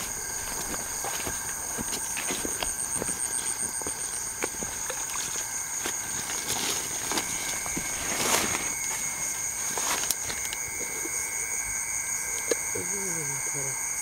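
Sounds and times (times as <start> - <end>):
footsteps in tall grass: 0.0 - 10.6
night insects chorus: 0.0 - 14.0.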